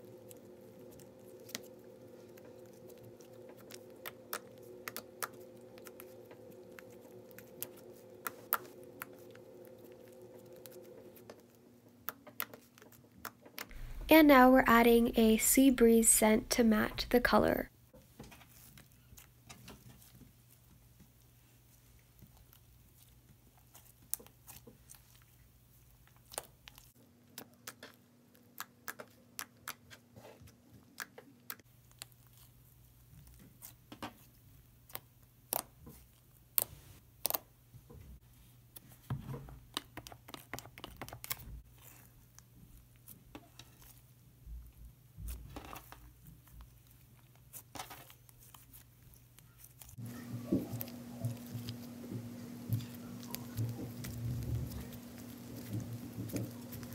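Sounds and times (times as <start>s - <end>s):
faint low hum: 0.0s - 11.8s, 13.7s - 17.7s, 49.2s - 56.9s.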